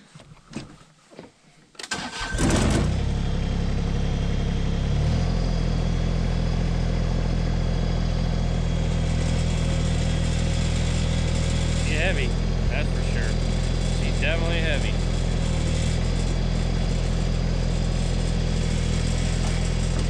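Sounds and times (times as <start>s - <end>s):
tractor diesel engine starting: 1.8s - 20.0s.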